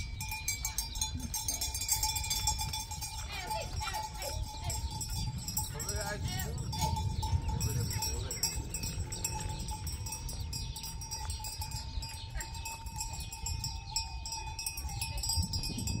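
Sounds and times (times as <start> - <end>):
goat bells jingling: 0.0 - 16.0
low rumble: 4.4 - 11.7.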